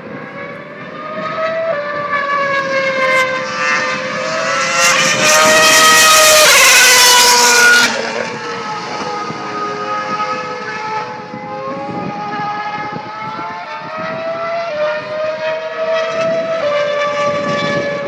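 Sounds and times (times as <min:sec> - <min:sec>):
racing car engine at high revs: 0:00.0 - 0:18.0.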